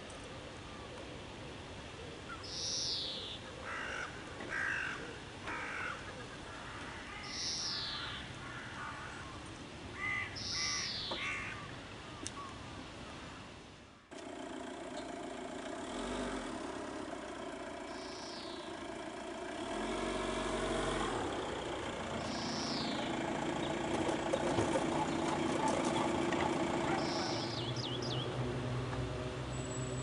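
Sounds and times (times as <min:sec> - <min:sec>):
steady outdoor hiss: 0:00.0 - 0:30.0
crows cawing: 0:03.6 - 0:11.7.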